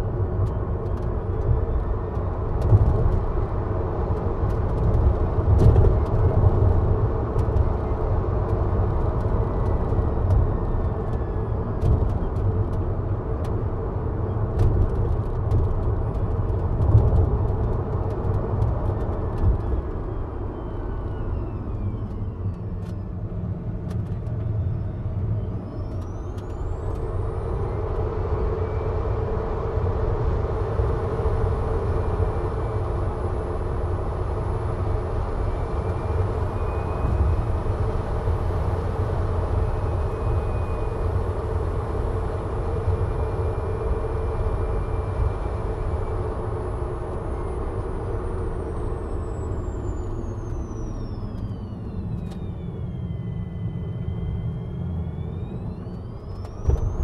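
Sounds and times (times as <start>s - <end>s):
tyre and road noise: 54.2s - 57.0s.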